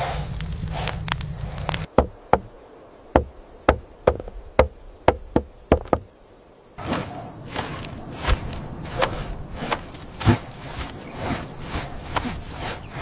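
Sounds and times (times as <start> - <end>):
campfire crackling: 0.0 - 13.0.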